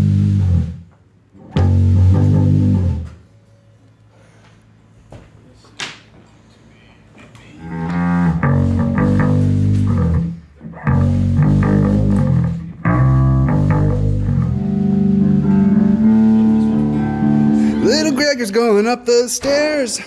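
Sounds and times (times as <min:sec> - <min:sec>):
amplified electric guitars: 0:01.4 - 0:03.2, 0:07.7 - 0:18.8.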